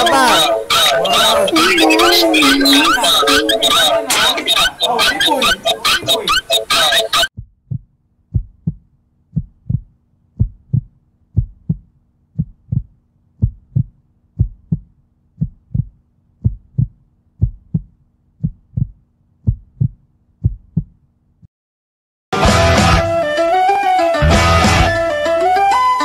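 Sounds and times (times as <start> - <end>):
heartbeat thumps: 7.4 - 21.0.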